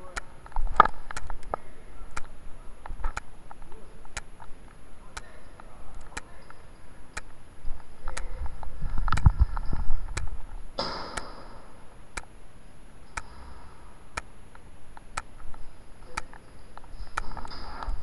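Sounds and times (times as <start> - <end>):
sharp ticks: 5.1 - 7.4, 13.1 - 13.4, 14.1 - 17.4.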